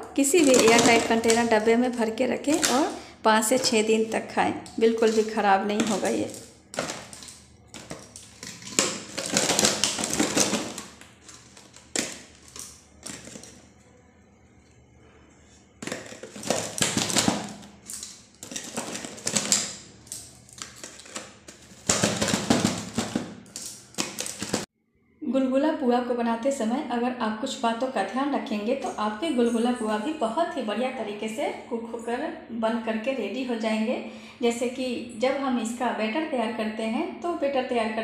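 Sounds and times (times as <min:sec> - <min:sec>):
fried snacks knocking into container: 0:00.4 - 0:01.6, 0:05.0 - 0:13.6, 0:15.8 - 0:24.7.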